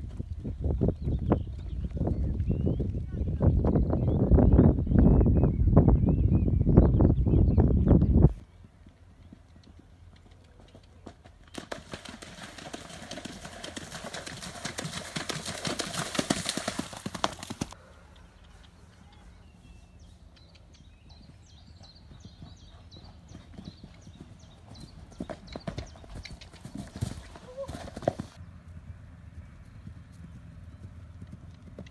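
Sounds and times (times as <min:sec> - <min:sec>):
hooves splashing through water: 0:11.5 - 0:17.8.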